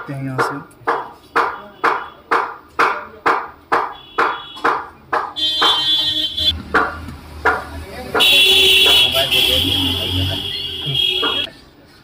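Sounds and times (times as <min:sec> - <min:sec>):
percussive beat of sharp knocks: 0:00.0 - 0:09.2, 0:11.1 - 0:11.5.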